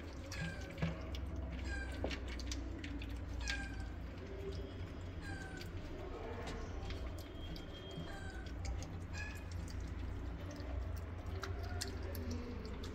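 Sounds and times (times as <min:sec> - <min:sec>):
kittens mewing: 0:03.2 - 0:04.3.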